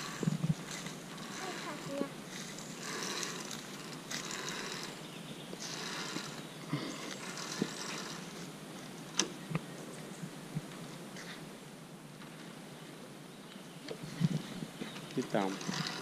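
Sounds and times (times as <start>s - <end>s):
carabiners sliding along steel cable: 0.0s - 9.3s, 15.1s - 16.0s.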